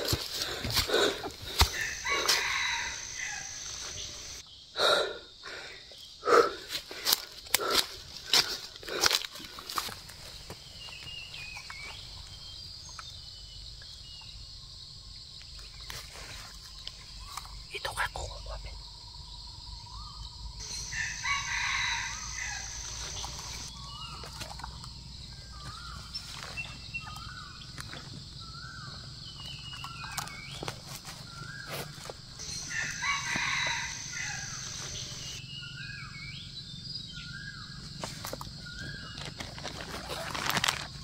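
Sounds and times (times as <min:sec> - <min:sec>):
rooster crowing: 0:01.6 - 0:04.4, 0:20.6 - 0:23.7, 0:32.4 - 0:35.4.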